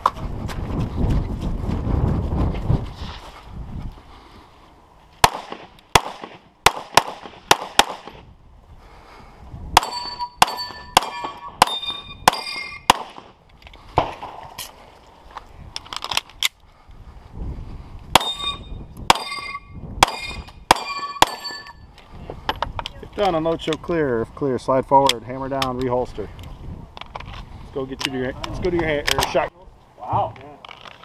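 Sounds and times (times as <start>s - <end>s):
pistol shots: 5.2s - 8.2s, 9.8s - 13.4s, 18.2s - 21.5s
steel targets clanging: 9.8s - 12.9s, 18.2s - 21.9s.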